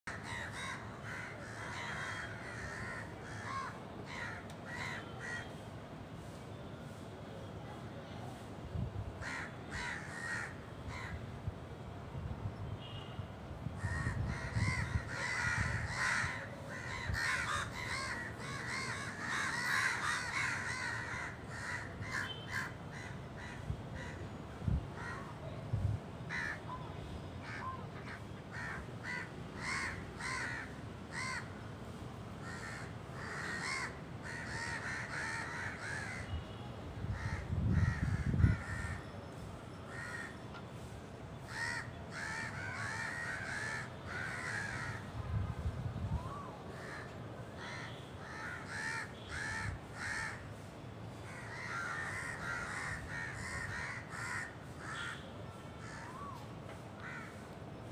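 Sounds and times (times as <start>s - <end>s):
crows cawing: 0.1s - 5.6s, 9.2s - 11.2s, 13.8s - 24.2s, 25.0s - 25.3s, 26.3s - 26.6s, 27.4s - 31.6s, 32.4s - 36.5s, 37.1s - 39.1s, 39.9s - 40.4s, 41.5s - 45.1s, 46.7s - 56.4s, 57.0s - 57.5s.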